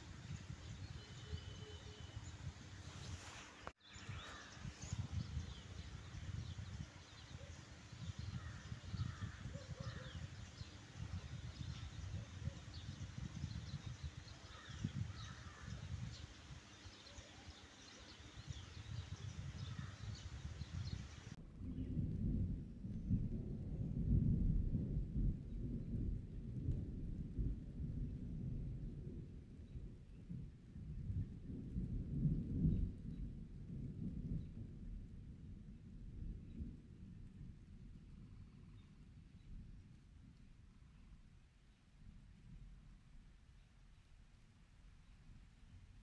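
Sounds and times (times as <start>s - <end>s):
faint bird chirps: 0.3s - 21.9s.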